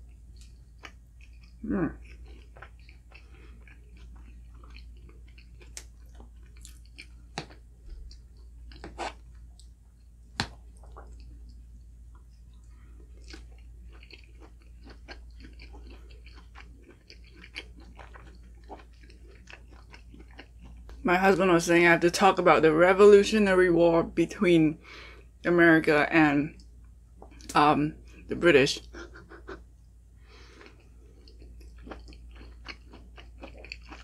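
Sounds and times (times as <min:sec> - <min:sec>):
person chewing food: 0:00.0 - 0:21.0, 0:28.9 - 0:34.0.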